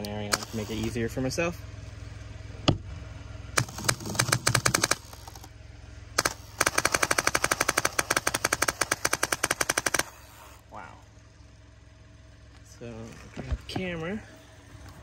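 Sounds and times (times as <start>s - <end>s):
airsoft gun shots: 3.6s - 5.3s, 6.2s - 10.2s.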